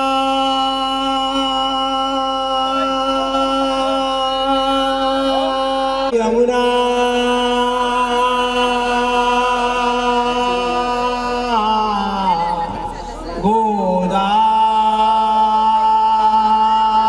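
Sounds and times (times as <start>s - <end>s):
person chanting a long note: 0.0s - 12.7s.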